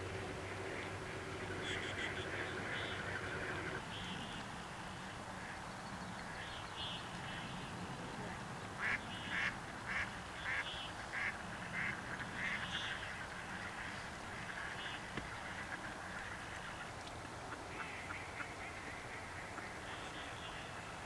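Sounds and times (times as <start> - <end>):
duck quacking: 1.6 - 3.8, 8.8 - 13.1.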